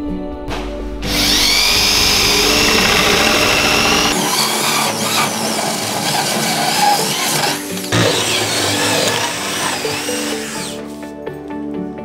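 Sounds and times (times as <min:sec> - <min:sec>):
electric drill hole saw cutting: 0:01.1 - 0:10.8.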